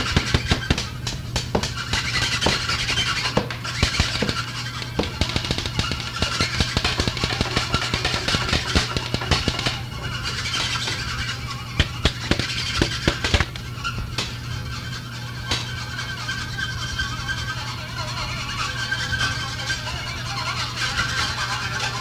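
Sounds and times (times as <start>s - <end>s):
clattering percussion: 0.0s - 14.7s.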